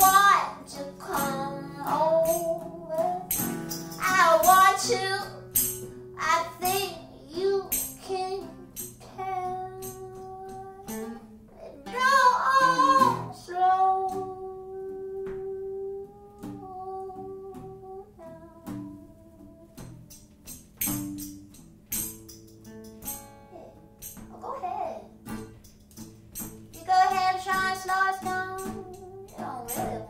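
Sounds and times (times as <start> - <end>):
person singing slow melody: 0.0 - 20.3, 26.8 - 30.0.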